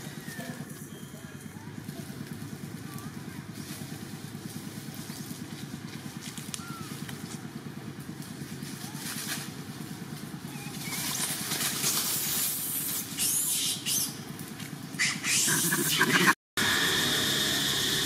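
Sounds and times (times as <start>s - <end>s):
dry leaves rustling underfoot: 1.5s - 13.2s
monkey high-pitched cries: 13.2s - 14.2s, 15.0s - 16.3s.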